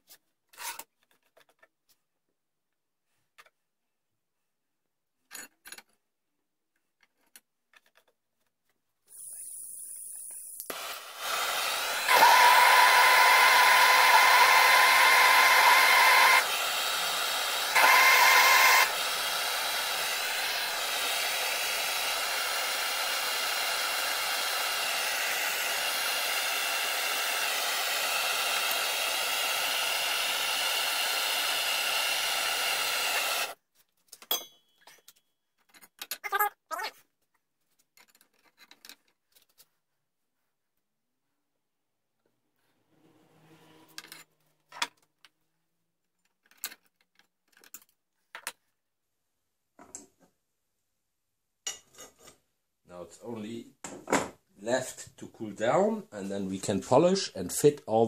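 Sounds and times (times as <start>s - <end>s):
torch whistling tone: 9.1s - 20.8s.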